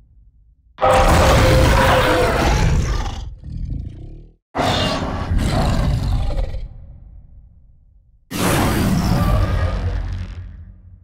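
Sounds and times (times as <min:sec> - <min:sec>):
monster roars: 0:00.8 - 0:06.8, 0:08.3 - 0:10.6.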